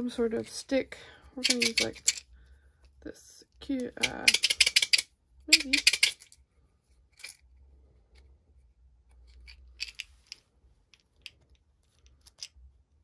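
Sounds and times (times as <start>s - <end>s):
craft supplies clicking and rustling: 1.4s - 2.2s.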